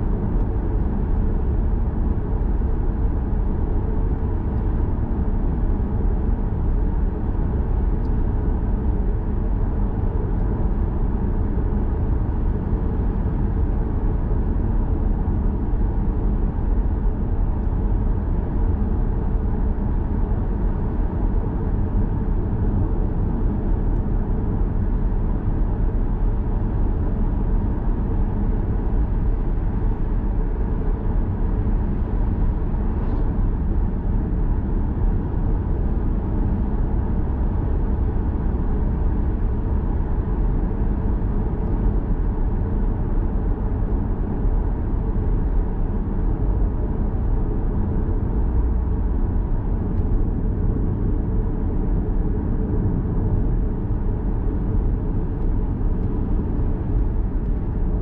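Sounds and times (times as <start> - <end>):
car road and tyre noise: 0.0 - 58.0.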